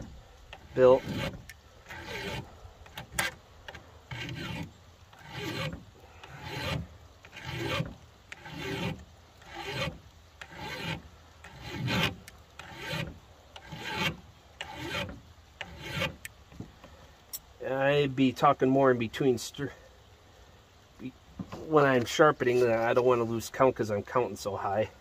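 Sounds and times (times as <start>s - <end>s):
file scraping saw chain: 0.6s - 3.4s, 4.1s - 16.2s.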